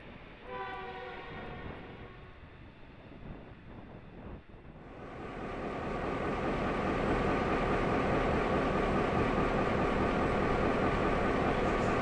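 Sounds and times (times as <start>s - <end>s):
diesel locomotive engine idling: 5.0s - 12.0s.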